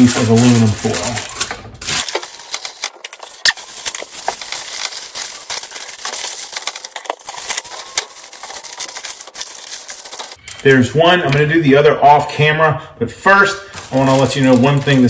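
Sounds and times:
aluminum foil crinkling: 0.0 - 10.4, 13.7 - 15.0.

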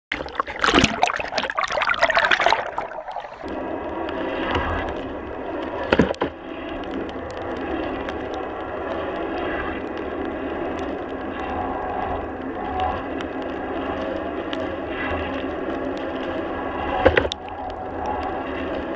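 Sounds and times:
sea water splashing: 0.1 - 5.0
water and wind rushing: 0.1 - 18.9.

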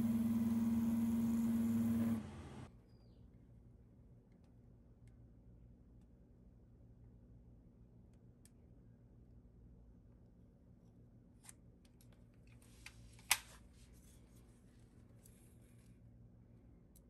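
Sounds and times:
faint steady hum: 0.0 - 11.3.

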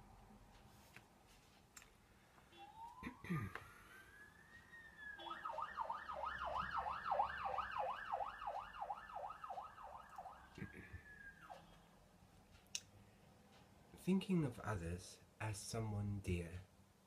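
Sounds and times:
emergency vehicle siren: 2.5 - 12.0.

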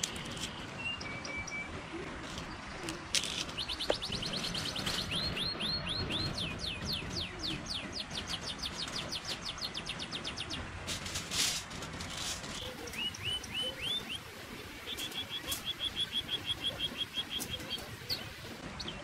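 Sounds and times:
songbird singing: 0.0 - 10.7, 12.4 - 19.0
short rustle: 10.9 - 12.7.

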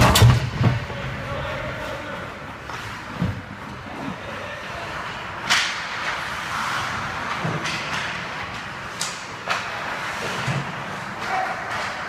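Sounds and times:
skate blades scraping ice: 3.8 - 12.0
hockey sticks and puck clacking: 4.6 - 12.0.

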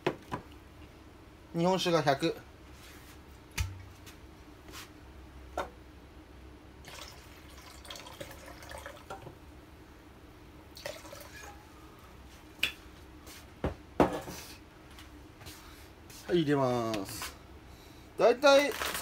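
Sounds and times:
liquid pouring into plastic jug: 6.8 - 9.2, 10.7 - 11.6.

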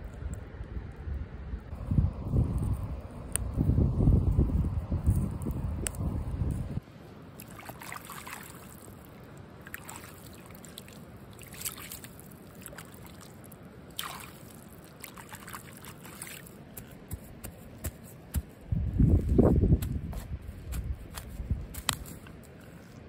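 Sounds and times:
water trickling and gurgling: 7.4 - 16.5.

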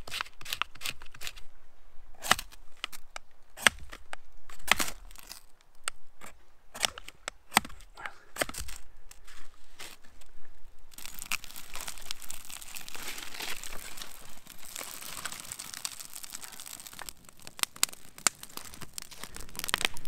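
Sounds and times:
fire crackling and hissing: 8.0 - 20.0
sharp pops of burning wood: 10.9 - 20.0.

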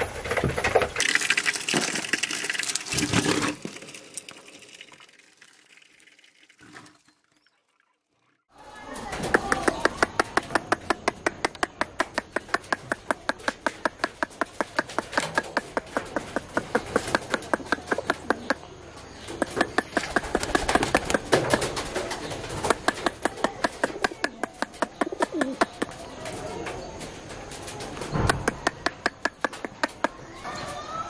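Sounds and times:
rapid clicking: 9.2 - 18.6
pigeons cooing: 15.2 - 30.9.

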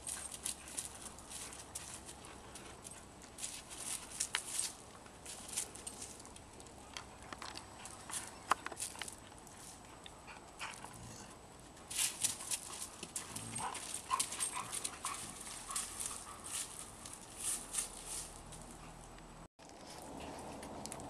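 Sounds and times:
paws scuffling on dry leaves: 0.0 - 6.2, 11.9 - 18.8.

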